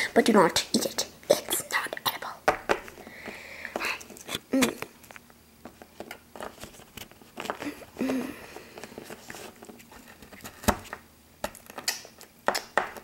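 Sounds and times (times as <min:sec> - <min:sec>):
plastic toy tapping crumbly mixture: 0:10.8 - 0:13.0.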